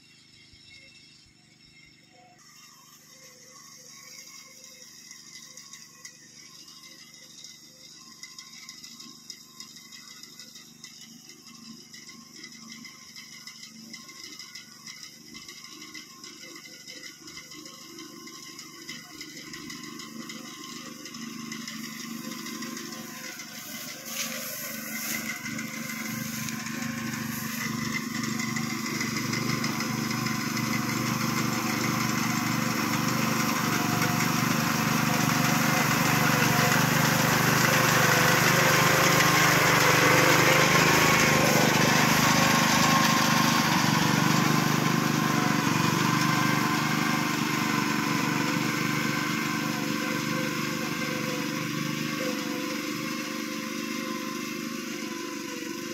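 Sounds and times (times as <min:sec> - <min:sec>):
small reaper engine running: 0:00.0 - 0:55.9.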